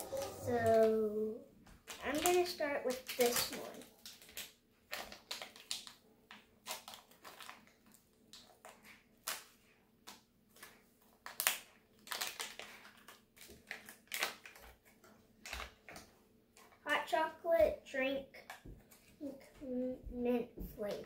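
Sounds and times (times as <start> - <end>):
drink packet crinkling and tearing: 1.8 - 15.8.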